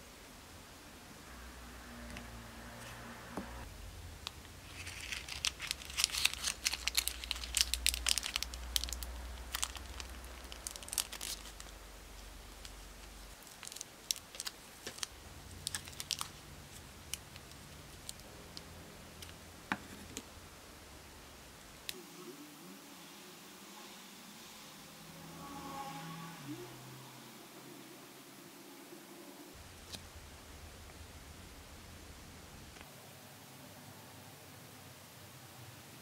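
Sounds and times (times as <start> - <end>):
plastic bag crinkling: 4.2 - 18.2.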